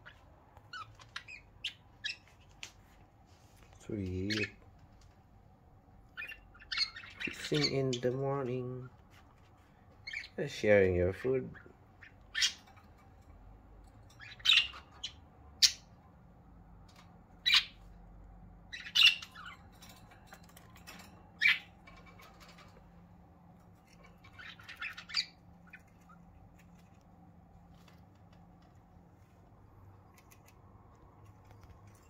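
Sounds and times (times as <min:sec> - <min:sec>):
budgerigars squawking and chirping: 0:00.0 - 0:02.4, 0:04.2 - 0:04.6, 0:06.1 - 0:08.4, 0:10.0 - 0:10.5, 0:11.5 - 0:13.0, 0:14.1 - 0:16.0, 0:17.4 - 0:17.9, 0:18.7 - 0:20.0, 0:20.9 - 0:22.7, 0:23.7 - 0:26.6.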